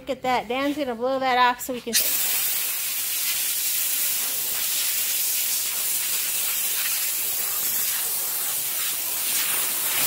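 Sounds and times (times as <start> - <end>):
air blow gun hissing: 2.0 - 10.0.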